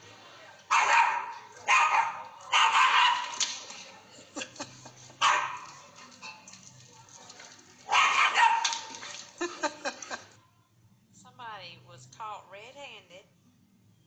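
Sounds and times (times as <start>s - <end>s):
dog barking: 0.7s - 3.5s, 5.1s - 6.5s, 7.3s - 9.6s.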